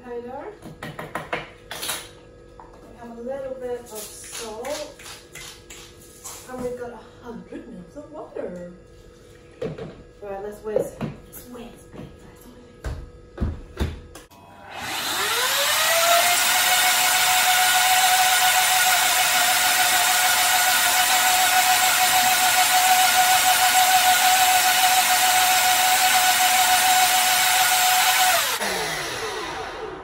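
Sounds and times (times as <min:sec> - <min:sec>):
blender motor whining: 0:14.4 - 0:30.0.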